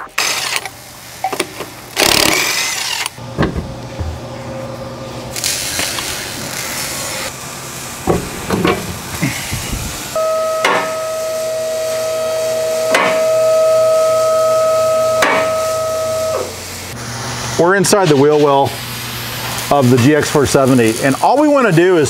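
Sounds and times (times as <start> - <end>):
wheel thumping on floor: 3.4 - 4.2, 8.0 - 9.3
hydraulic pump whining: 5.7 - 17.3.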